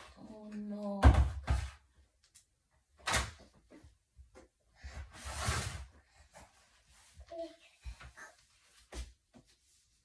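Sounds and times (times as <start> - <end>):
basket scraping across floor: 4.8 - 6.1.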